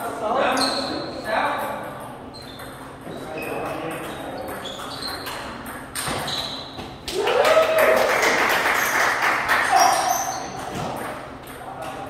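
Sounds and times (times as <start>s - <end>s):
crowd shouting and cheering: 7.1s - 8.3s.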